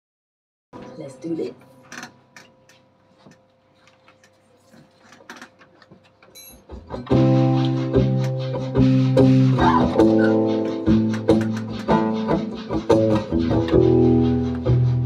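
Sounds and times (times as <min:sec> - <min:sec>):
small clicks and knocks: 0:01.9 - 0:07.0
acoustic guitar picking: 0:06.4 - 0:15.0
synthesizer chords: 0:06.7 - 0:15.0.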